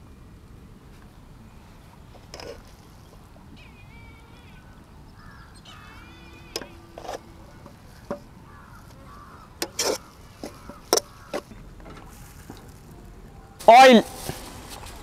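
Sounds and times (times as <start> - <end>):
small birds chirping: 1.0 - 12.8.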